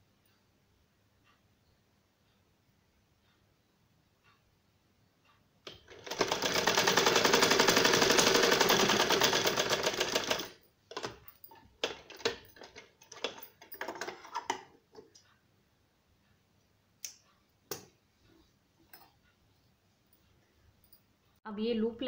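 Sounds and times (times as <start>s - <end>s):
sewing machine stitching: 5.7s - 11.2s
handling clicks and knocks: 10.9s - 15.2s.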